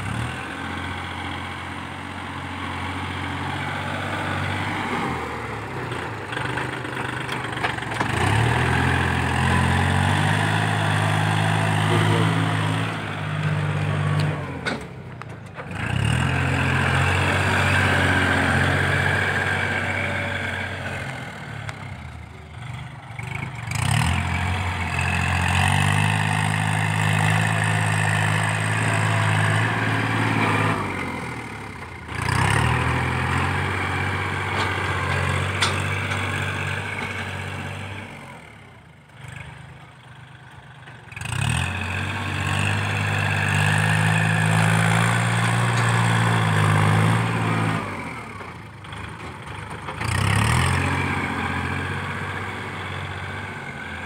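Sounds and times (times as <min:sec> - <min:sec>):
tractor diesel engine working: 0:00.0 - 0:54.0.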